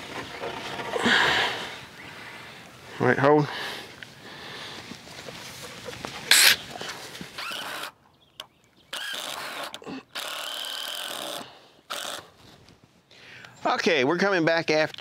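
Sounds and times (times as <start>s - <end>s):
cordless drill driving screws: 7.4s - 8.0s, 8.9s - 12.4s.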